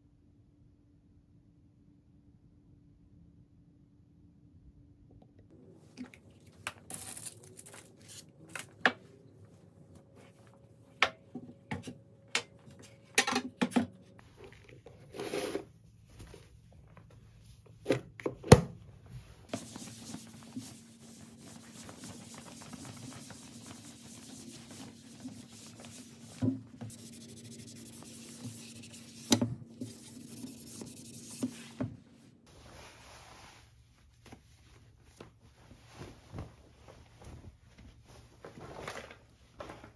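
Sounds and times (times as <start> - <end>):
bedding and clothes rustling: 7.7 - 11.9, 15.8 - 17.8, 18.9 - 28.5, 30.2 - 39.9.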